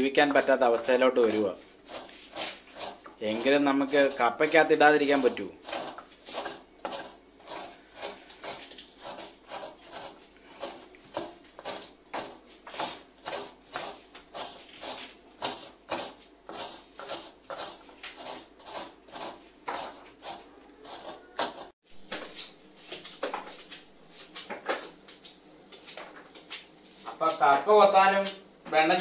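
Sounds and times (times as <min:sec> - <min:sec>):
coconut scraping rasps: 0:00.0 - 0:21.8
knife scraping cassava: 0:00.2 - 0:21.8.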